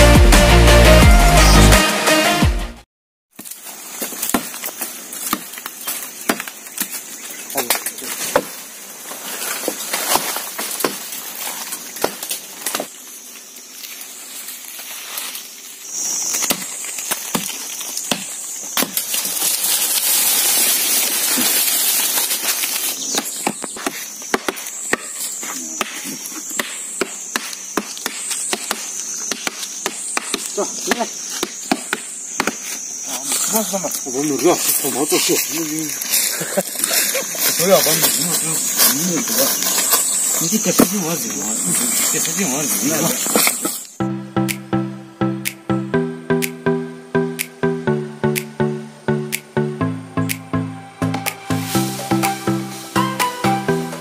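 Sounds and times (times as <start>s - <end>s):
machetes chopping wood: 3.4s - 7.0s, 7.6s - 8.6s, 9.6s - 12.9s, 16.3s - 19.4s, 23.0s - 32.8s, 42.2s - 43.9s
insects droning: 3.4s - 54.0s.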